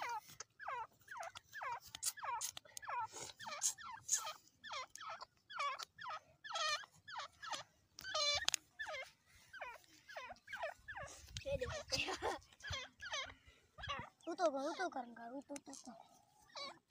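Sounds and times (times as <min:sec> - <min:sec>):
partridges calling: 0:00.0 - 0:16.9.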